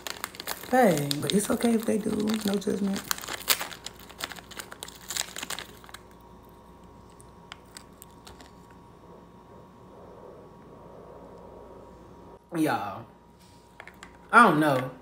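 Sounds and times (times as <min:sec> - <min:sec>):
plastic packet crinkling: 0:00.0 - 0:08.8.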